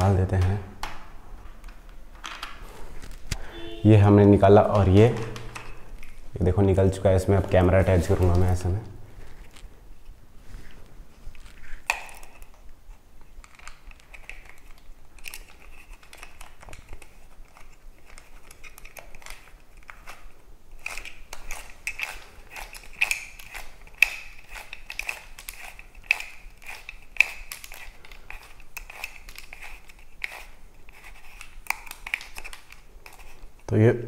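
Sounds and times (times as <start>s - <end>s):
clicks and scrapes of camera plate: 13.5s - 33.5s.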